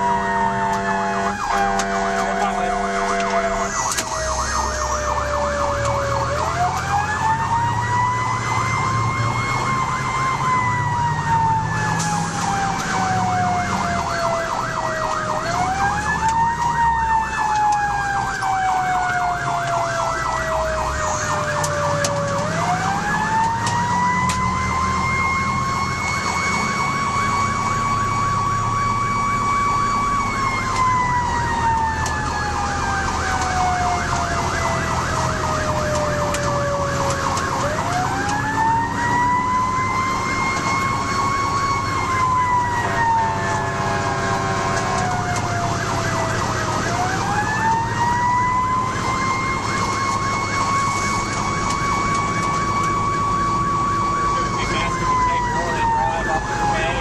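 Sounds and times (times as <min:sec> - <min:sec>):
steady horn tone: 0:00.0 - 0:04.9, 0:42.8 - 0:45.0
diesel engine rumbling: 0:00.0 - 0:57.0
siren wailing: 0:00.0 - 0:57.0
siren yelping warble: 0:00.0 - 0:57.0.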